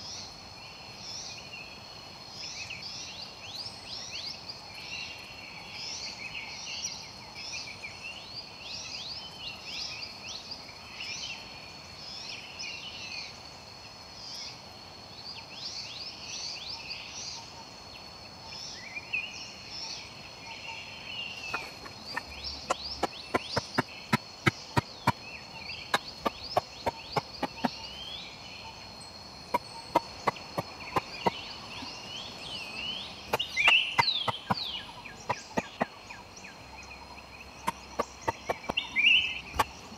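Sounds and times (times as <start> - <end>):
high insect tones: 8.8 - 39.9
birds chirping: 15.7 - 39.9
wooden knocks on bamboo poles: 21.5 - 25.2, 26.0 - 27.8, 33.3 - 36.0, 37.7 - 38.8.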